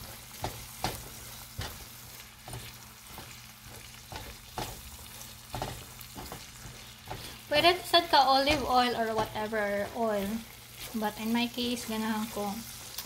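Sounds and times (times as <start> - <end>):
spatula scraping and tapping pan: 0.0 - 13.0
vegetables sizzling in butter: 0.0 - 13.0.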